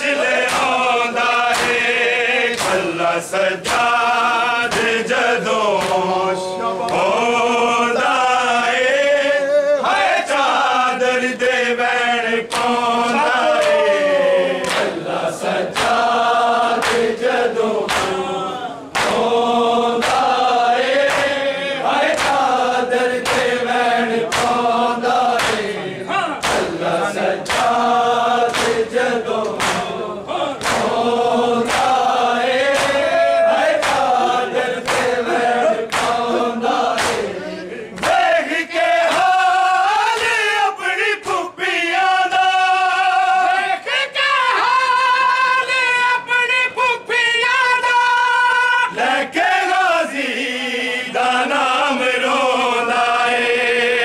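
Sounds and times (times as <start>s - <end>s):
men chanting a lament: 0.0s - 54.0s
hands slapping chests: 0.4s - 3.0s, 3.6s - 4.0s, 4.6s - 5.0s, 5.7s - 6.1s, 12.5s - 14.0s, 14.6s - 18.3s, 18.9s - 25.8s, 26.4s - 30.0s, 30.6s - 39.4s, 40.1s - 40.4s.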